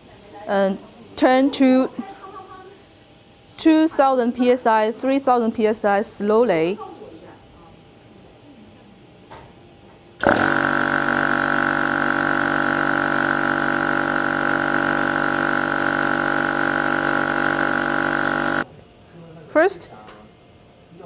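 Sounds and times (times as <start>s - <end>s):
air compressor whining and pulsing: 10.2s - 18.7s.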